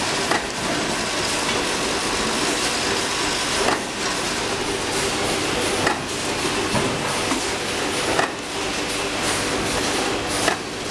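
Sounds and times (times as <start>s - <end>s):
crimping machine running: 0.0s - 10.9s
press strokes clacking: 3.5s - 4.2s, 5.6s - 8.4s, 10.4s - 10.7s.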